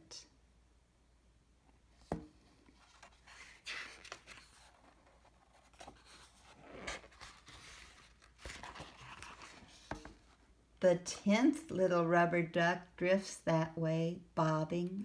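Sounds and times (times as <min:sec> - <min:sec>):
book pages rustling: 0:02.1 - 0:10.5.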